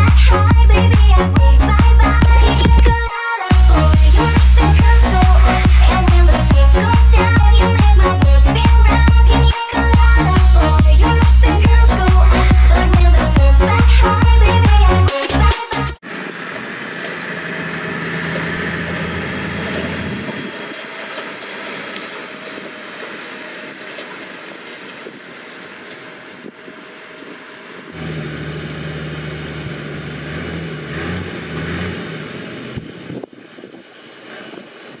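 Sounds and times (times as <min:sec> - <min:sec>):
tractor engine humming: 0:00.0 - 0:35.0
baler machinery working: 0:16.0 - 0:35.0.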